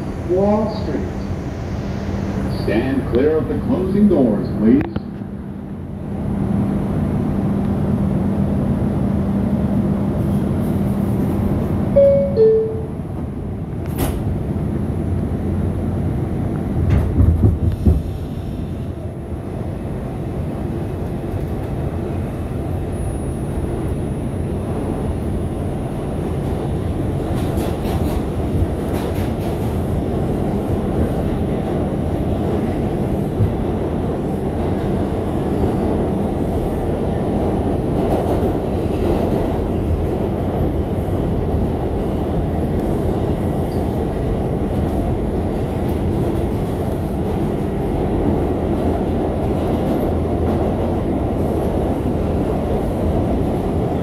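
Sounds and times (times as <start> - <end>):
wheels rumbling on rail: 0.0 - 54.0
train clicks: 13.8 - 14.3, 16.8 - 18.2, 27.2 - 29.8.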